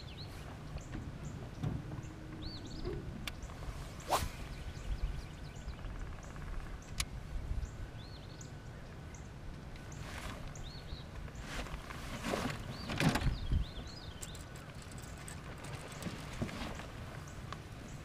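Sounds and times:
small birds chirping: 0.0s - 18.0s
short swish: 3.7s - 4.7s.

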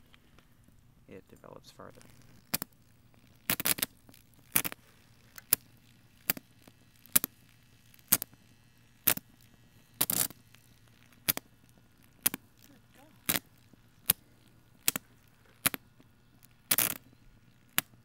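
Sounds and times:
electrical cracks and pops: 0.0s - 18.0s
low electrical hum: 0.0s - 18.0s.

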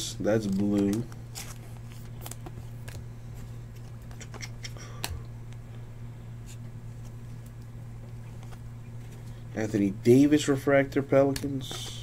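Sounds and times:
steady low hum: 0.0s - 12.0s
cards and plastic sleeve rustling: 0.3s - 5.2s, 11.2s - 12.0s.

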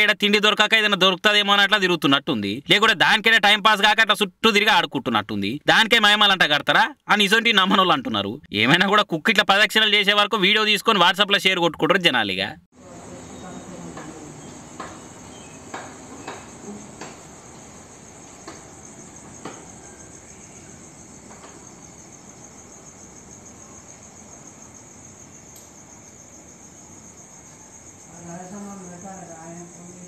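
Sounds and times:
crickets chirping: 12.8s - 30.0s.

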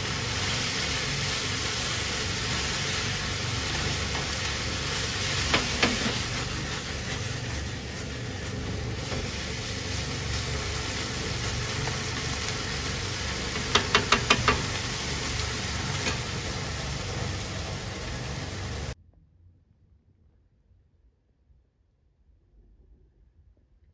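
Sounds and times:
noodles sizzling in a frying pan: 0.0s - 19.0s.

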